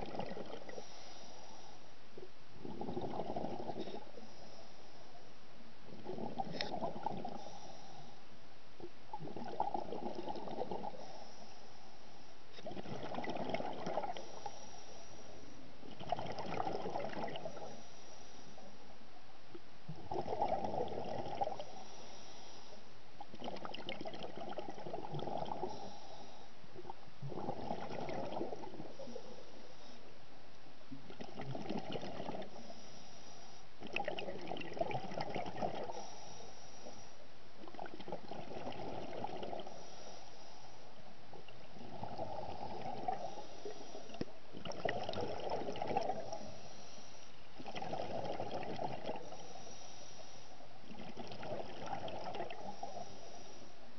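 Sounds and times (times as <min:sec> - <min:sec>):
exhaled bubbles gurgling: 0:00.0 - 0:01.0, 0:02.6 - 0:04.3, 0:05.9 - 0:07.8, 0:08.8 - 0:11.3, 0:12.5 - 0:17.8, 0:19.9 - 0:21.8, 0:23.2 - 0:26.1, 0:26.8 - 0:29.7, 0:30.9 - 0:32.8, 0:33.8 - 0:36.4, 0:37.6 - 0:39.9, 0:41.0 - 0:46.7, 0:47.5 - 0:49.8, 0:50.8 - 0:53.6
diver breathing through regulator: 0:00.7 - 0:01.9, 0:03.0 - 0:05.2, 0:06.4 - 0:08.3, 0:10.7 - 0:12.9, 0:14.0 - 0:15.6, 0:17.4 - 0:18.8, 0:21.5 - 0:22.9, 0:25.4 - 0:26.6, 0:32.2 - 0:33.7, 0:35.7 - 0:37.3, 0:39.3 - 0:41.0, 0:42.0 - 0:44.3, 0:45.9 - 0:48.3, 0:49.0 - 0:50.7, 0:52.4 - 0:53.9.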